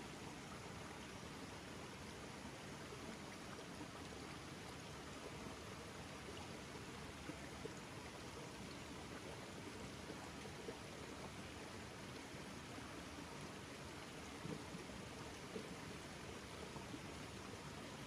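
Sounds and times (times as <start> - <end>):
stream running over rocks: 0.0 - 18.0
faint ticks: 14.2 - 15.8.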